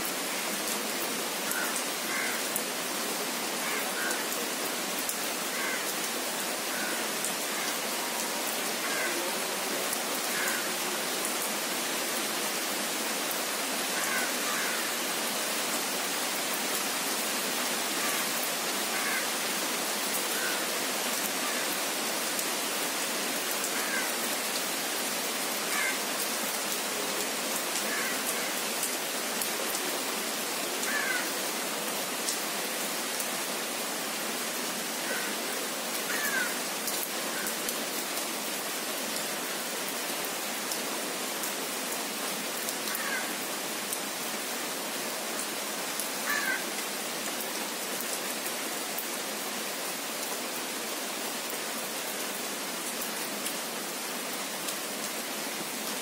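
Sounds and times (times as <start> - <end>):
rain pattering on leaves: 0.0 - 56.0.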